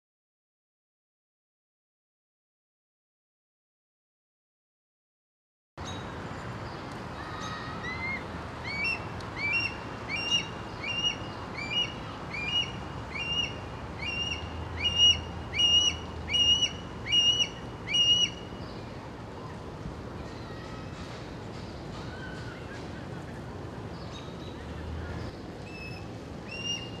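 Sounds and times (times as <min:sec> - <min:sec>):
hawk calling: 0:08.0 - 0:18.4.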